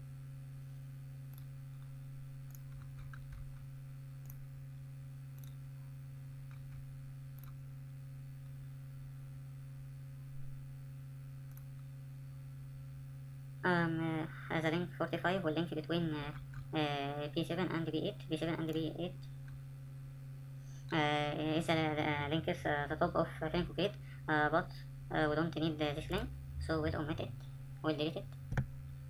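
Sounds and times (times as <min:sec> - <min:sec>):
low electrical hum: 0:00.0 - 0:29.0
computer mouse clicks: 0:01.3 - 0:01.9, 0:02.5 - 0:03.6, 0:04.2 - 0:04.4, 0:05.4 - 0:05.6, 0:06.4 - 0:07.6, 0:11.5 - 0:11.9.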